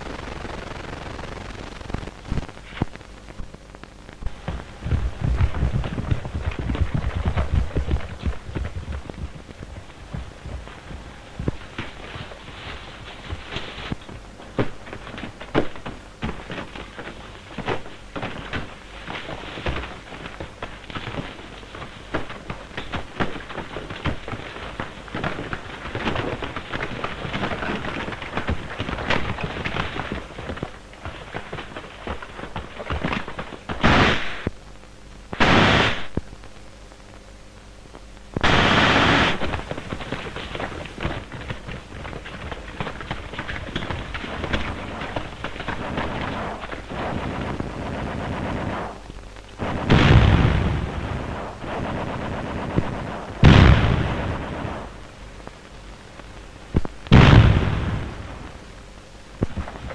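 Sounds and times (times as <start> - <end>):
gunshots: 32.8 - 34.5, 35.4 - 36.2, 38.4 - 41.2, 49.6 - 55.0, 57.1 - 58.6.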